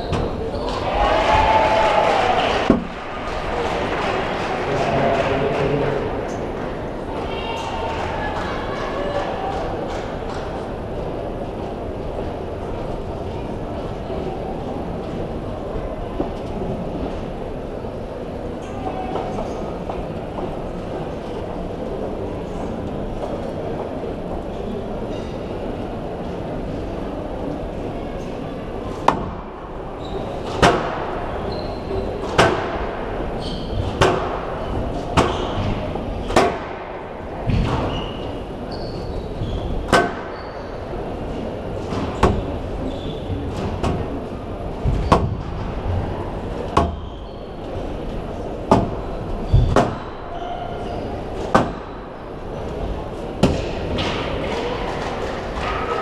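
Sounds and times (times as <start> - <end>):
crowd murmur: 0.0 - 56.0
squash ball hitting rackets and walls: 29.0 - 29.5, 30.4 - 31.3, 32.2 - 38.3, 39.6 - 40.3, 41.8 - 42.6, 44.8 - 46.0, 46.7 - 47.1, 48.6 - 50.2, 51.4 - 52.0.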